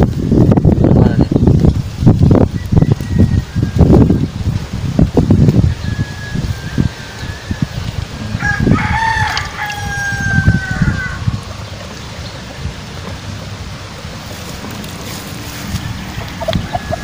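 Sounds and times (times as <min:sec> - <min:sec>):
rooster crowing: 0:05.8 - 0:11.4, 0:16.0 - 0:17.0.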